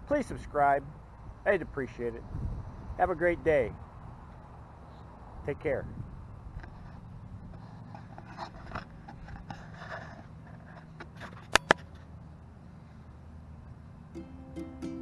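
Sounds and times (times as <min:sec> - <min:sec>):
camera handling rustling and scraping: 0:06.6 - 0:12.1.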